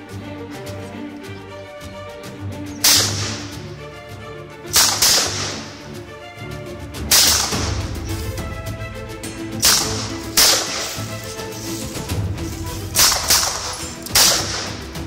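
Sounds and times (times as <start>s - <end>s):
background music: 0.0s - 15.0s
rifle single shots: 2.8s - 3.5s, 4.8s - 5.8s, 7.1s - 7.9s, 9.6s - 11.3s, 13.0s - 15.0s.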